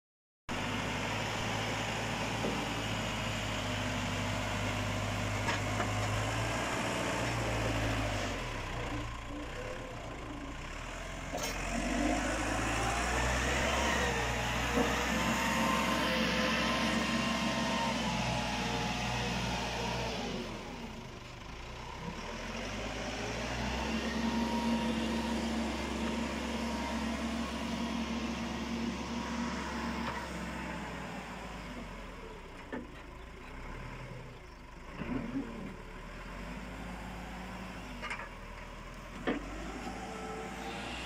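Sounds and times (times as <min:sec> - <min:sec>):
diesel engine running: 0:00.5 - 0:41.0.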